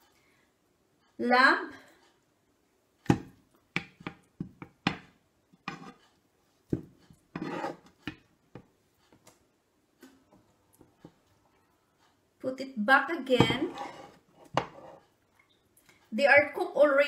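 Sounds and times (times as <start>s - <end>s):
spoon and meat knocking in frying pan: 3.1s - 5.8s.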